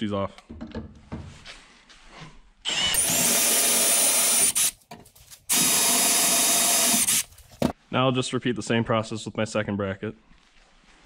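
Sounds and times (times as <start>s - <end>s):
cordless drill drilling through steel: 2.7s - 4.8s, 5.5s - 7.3s.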